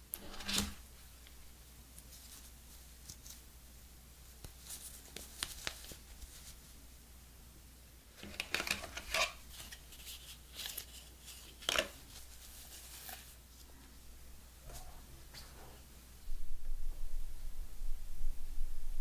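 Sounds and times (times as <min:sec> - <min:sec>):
paper rustling: 0:04.5 - 0:06.7, 0:08.2 - 0:13.7.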